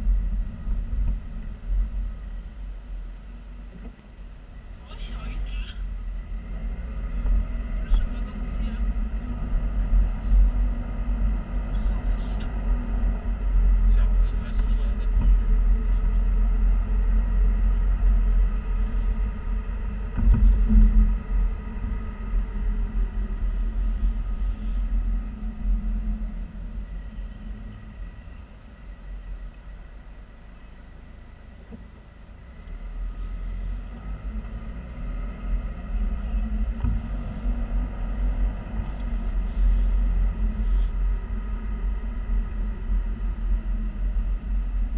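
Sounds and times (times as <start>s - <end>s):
car road rumble inside cabin: 0.0s - 44.9s
thump: 20.1s - 21.0s, 36.8s - 37.1s.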